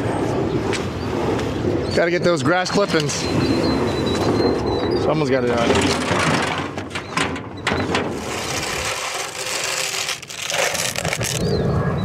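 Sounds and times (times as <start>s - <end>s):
metal shovel scraping concrete: 8.0s - 11.4s.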